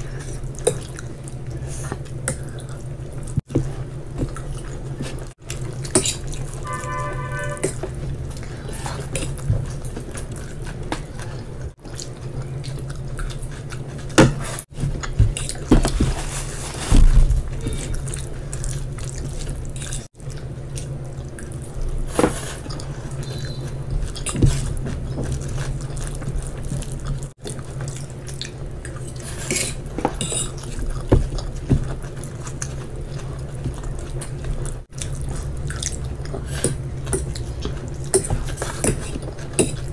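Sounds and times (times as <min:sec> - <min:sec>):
wet chewing and mouth sounds: 0:00.0 - 0:06.6, 0:07.6 - 0:16.1, 0:17.4 - 0:39.9
fork scraping on ceramic plate: 0:06.6 - 0:07.8.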